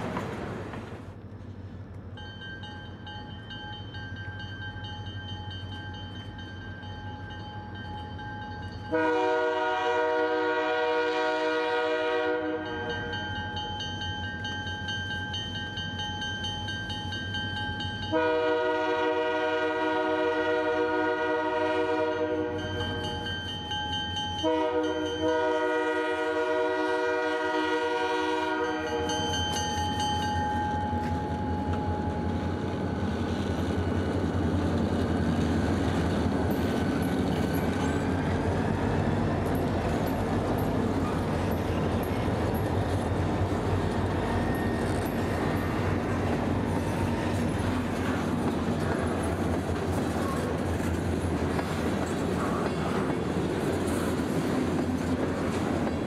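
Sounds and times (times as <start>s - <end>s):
train wheels clattering on rail joints: 0.0s - 3.7s, 28.8s - 56.0s
locomotive horn blasts: 8.9s - 12.8s, 18.1s - 22.7s, 24.4s - 29.1s.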